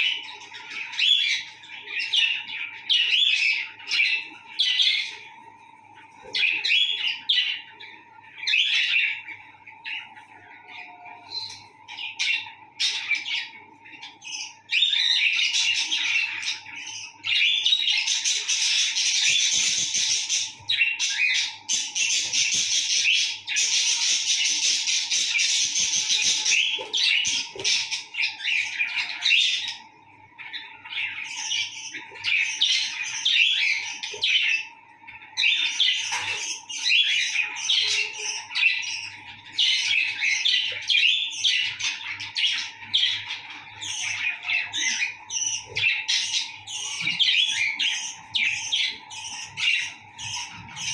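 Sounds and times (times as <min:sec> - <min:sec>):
budgerigars chattering: 0:06.2 - 0:29.8, 0:30.4 - 0:50.9.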